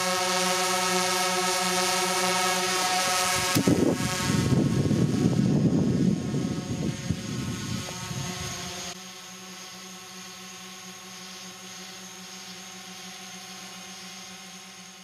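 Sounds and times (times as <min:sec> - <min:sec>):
drone propeller hum: 0:00.0 - 0:15.0
rocket motors crackling rush: 0:00.1 - 0:09.0.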